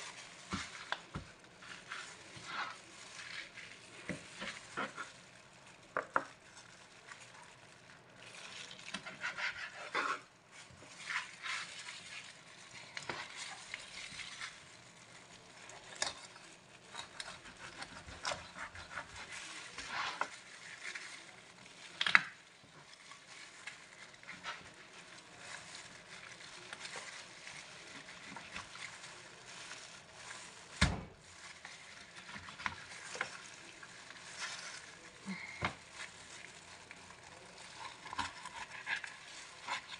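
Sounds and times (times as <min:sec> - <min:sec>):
knife scraping raw chicken: 0:08.6 - 0:14.6, 0:15.9 - 0:21.2, 0:37.5 - 0:39.9.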